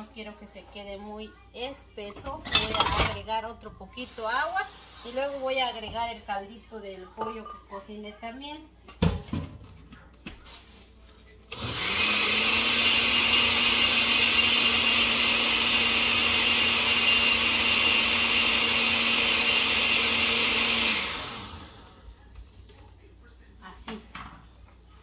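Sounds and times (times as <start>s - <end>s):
blender motor humming: 11.5s - 22.0s.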